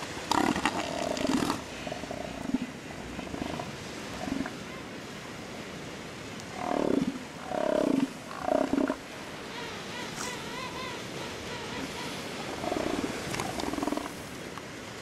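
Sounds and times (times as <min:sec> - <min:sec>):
elephant seals roaring: 0:06.5 - 0:09.0, 0:12.5 - 0:14.2.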